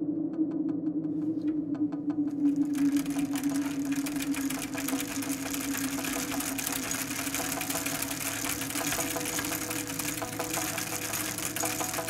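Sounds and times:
bicycle rattling over paving stones: 2.5s - 12.0s.

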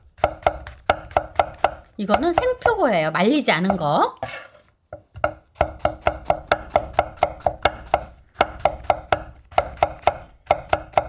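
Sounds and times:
knife chopping on wooden board: 0.2s - 2.8s, 5.0s - 11.0s.

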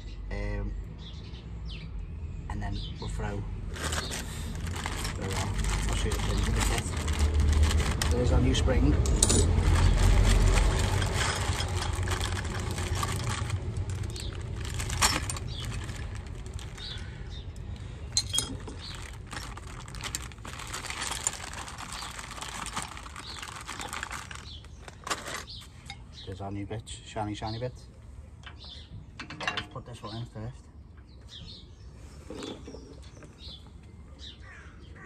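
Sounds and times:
passing vehicle rumble: 0.9s - 25.2s
metal parts clinking in plastic bag: 3.8s - 17.0s, 18.1s - 25.6s.

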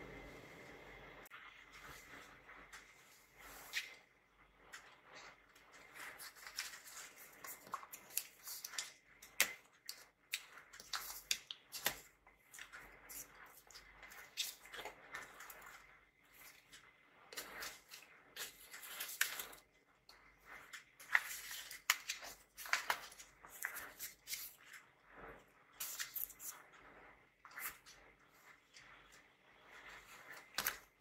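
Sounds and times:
string scraping against paper: 1.4s - 31.0s.

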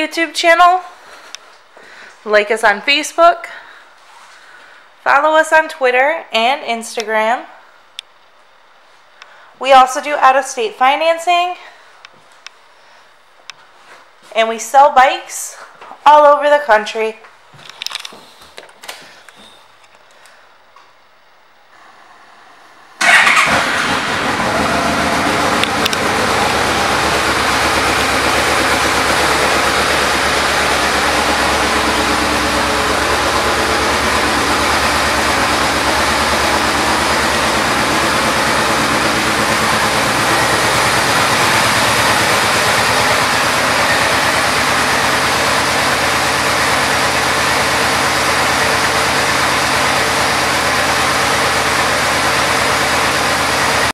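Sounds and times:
motorcycle engine idling: 23.0s - 53.9s.

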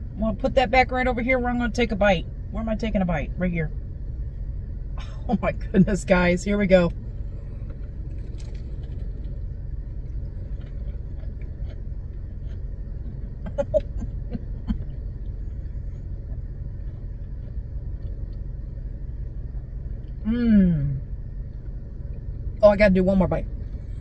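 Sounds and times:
low rumble inside car: 0.0s - 24.0s
chewing and mouth sounds: 7.4s - 18.9s.

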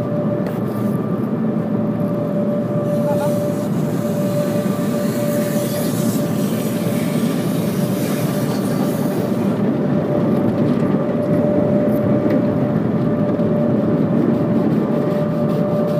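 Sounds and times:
constant hum: 0.0s - 15.9s.

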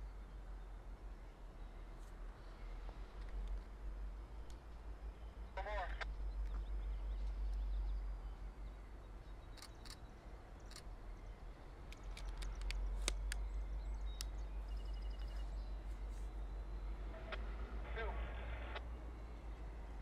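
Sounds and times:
freight train rumbling on tracks: 0.0s - 20.0s
bird chirps: 5.2s - 17.0s
sharp clicks: 9.5s - 10.0s, 11.9s - 13.5s, 14.1s - 14.4s.

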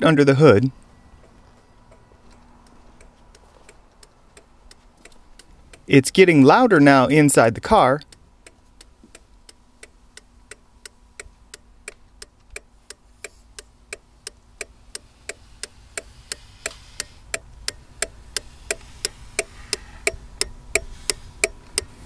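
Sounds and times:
turn signal relay clicking: 0.8s - 5.9s, 8.0s - 22.0s.

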